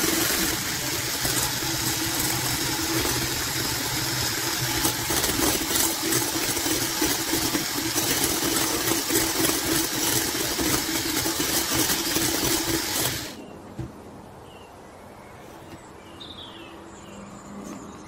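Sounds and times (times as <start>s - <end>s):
electric hand mixer running: 0.0s - 13.4s.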